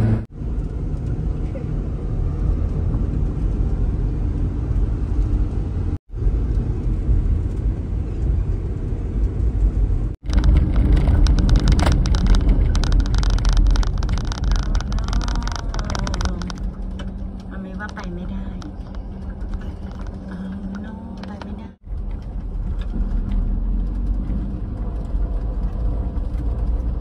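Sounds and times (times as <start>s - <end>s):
knocks and rattles on bumpy road: 0.0s - 27.0s
truck engine and road rumble: 0.0s - 27.0s.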